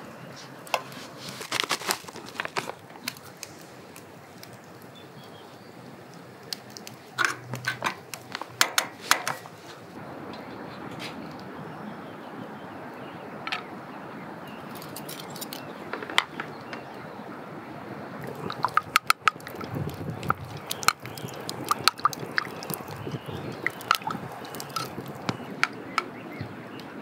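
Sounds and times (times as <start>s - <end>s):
steady hiss: 0.0s - 11.3s
wood fire crackling and popping: 0.6s - 9.9s, 18.2s - 25.8s.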